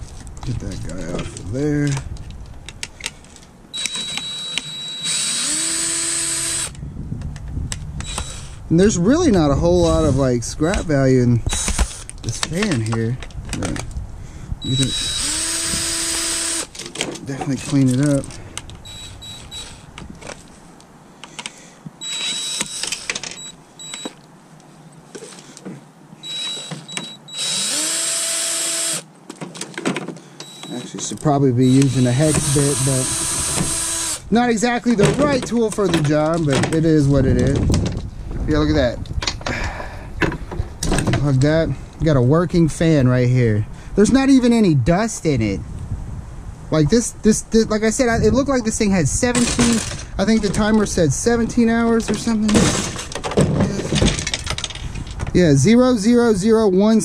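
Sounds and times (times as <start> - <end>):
electric drill spinning: 3.8 - 6.8, 8.0 - 8.6, 14.8 - 16.7, 18.9 - 19.9, 26.3 - 29.0, 31.7 - 34.2
clicks and rattles of parts: 11.5 - 14.0, 16.7 - 20.5, 21.2 - 24.3, 29.2 - 32.6, 34.9 - 38.1, 49.3 - 50.8, 52.0 - 55.4.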